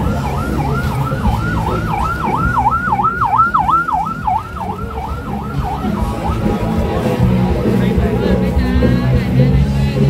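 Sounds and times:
emergency siren yelping: 0.0 - 7.5.

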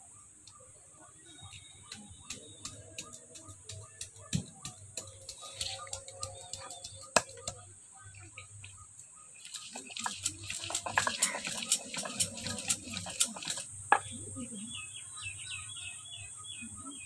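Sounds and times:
stone pestle knocking and grinding: 1.9 - 7.6, 9.5 - 14.0.

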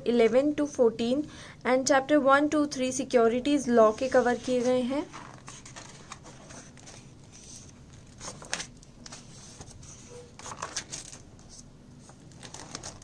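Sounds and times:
paper rustling: 3.9 - 13.0
page turns: 4.1 - 13.0.

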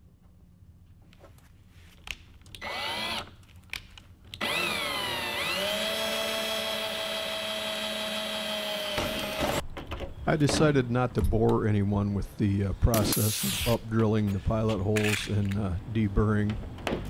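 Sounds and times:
cordless drill whining: 2.6 - 3.3, 4.3 - 9.6.

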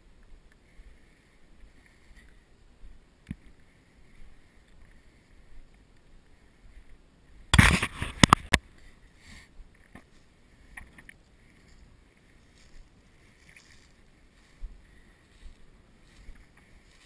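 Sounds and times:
faint outdoor background: 0.0 - 17.0
camera rustling: 7.5 - 8.6.

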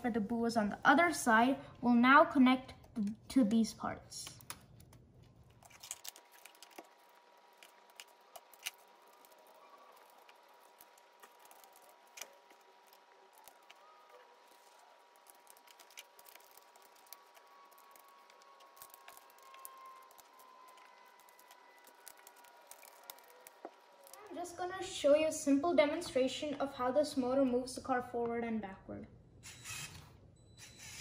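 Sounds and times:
plastic pieces clicking: 4.2 - 24.3.

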